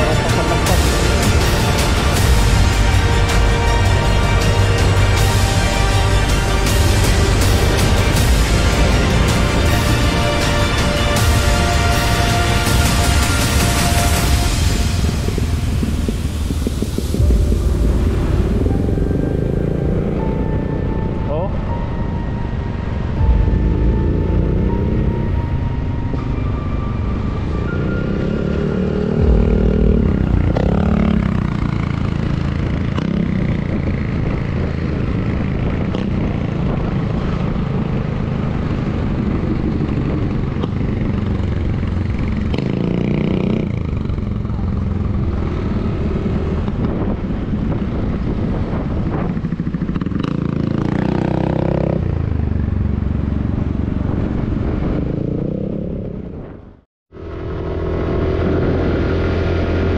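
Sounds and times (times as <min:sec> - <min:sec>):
wind noise: 0:13.6 - 0:21.1, 0:29.2 - 0:42.5, 0:43.6 - 0:52.4, 0:53.1 - 0:59.9
motorcycle engine revving: 0:27.6 - 0:59.9.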